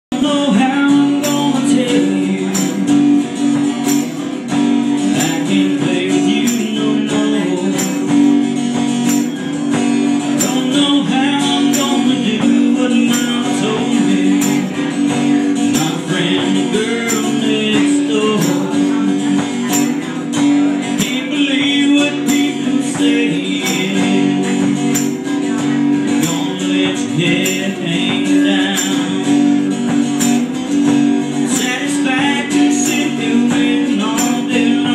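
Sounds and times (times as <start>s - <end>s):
acoustic guitars playing: 0.1s - 34.9s.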